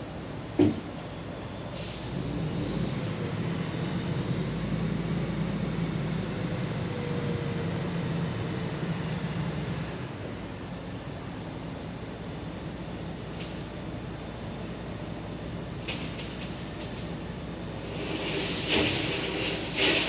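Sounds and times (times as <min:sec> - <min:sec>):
short hisses of air: 0:01.7 - 0:02.1, 0:17.8 - 0:20.0.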